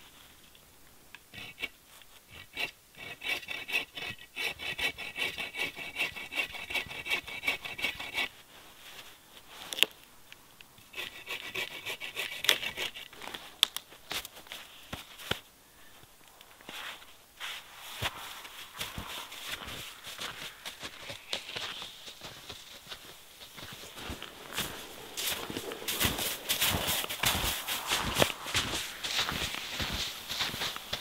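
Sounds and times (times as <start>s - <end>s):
hand saw cutting log: 1.3s - 8.3s, 10.9s - 13.3s, 23.5s - 30.2s.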